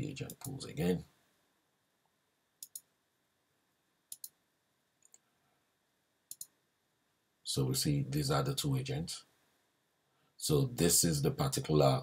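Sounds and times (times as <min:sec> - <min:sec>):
computer mouse clicking: 0:02.6 - 0:02.9, 0:04.1 - 0:04.4, 0:06.3 - 0:06.5.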